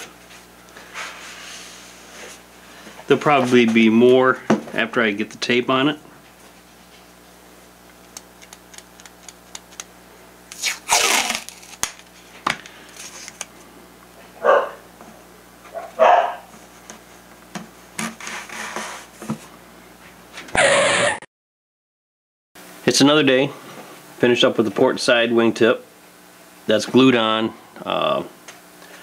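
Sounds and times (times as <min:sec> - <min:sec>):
steady low hum: 0:00.0 - 0:20.5
tape ripping off a roll: 0:08.0 - 0:09.9, 0:10.5 - 0:13.6, 0:18.0 - 0:19.1.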